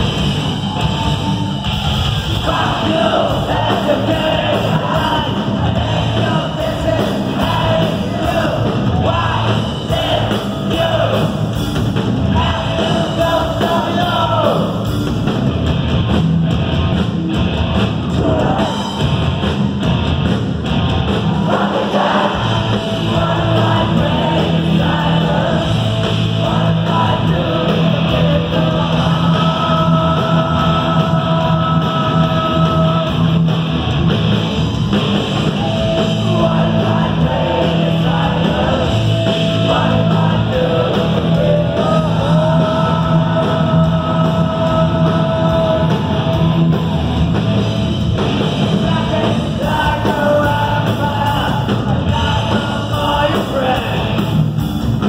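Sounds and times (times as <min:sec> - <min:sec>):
metal band playing live: 0:00.0 - 0:55.0
person singing: 0:26.4 - 0:33.2, 0:35.7 - 0:46.3.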